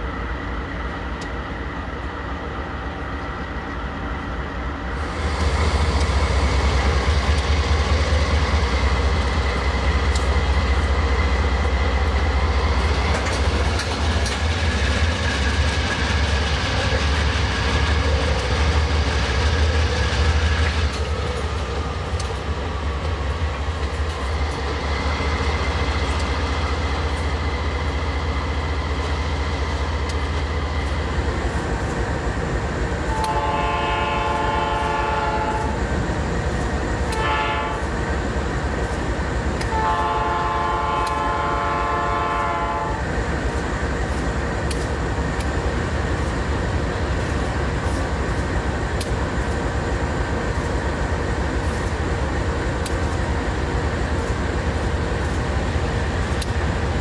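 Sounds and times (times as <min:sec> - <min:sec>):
locomotive engines rumbling: 0:00.0 - 0:57.0
train wheels clicking: 0:04.9 - 0:57.0
train horn: 0:33.1 - 0:35.8, 0:37.1 - 0:37.9, 0:39.7 - 0:43.0.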